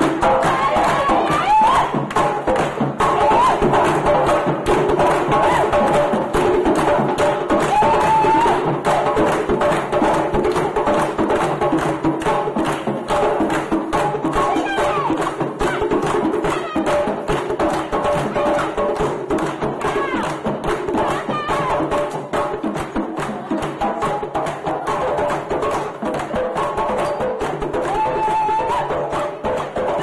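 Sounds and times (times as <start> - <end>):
fast percussion drumming: 0.0 - 30.0
voices singing and calling: 14.4 - 17.2, 21.0 - 21.9.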